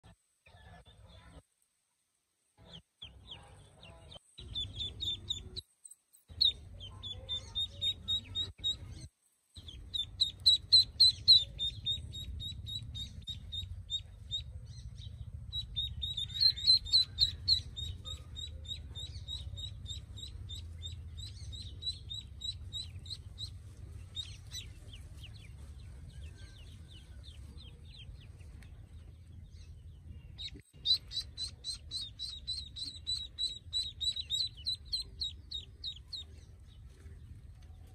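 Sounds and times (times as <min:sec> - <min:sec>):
ducklings peeping: 0:02.6 - 0:05.6, 0:06.2 - 0:37.9
low steady rumble: 0:06.3 - 0:37.9.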